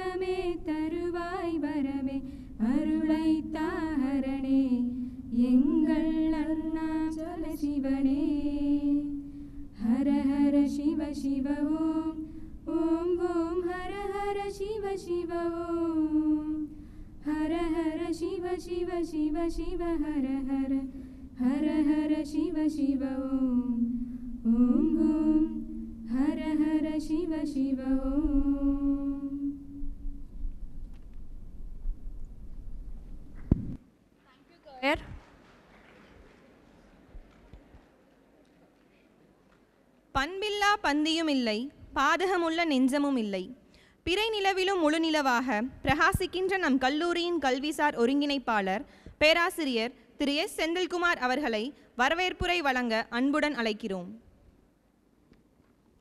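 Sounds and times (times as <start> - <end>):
women singing together: 0.0 - 29.8.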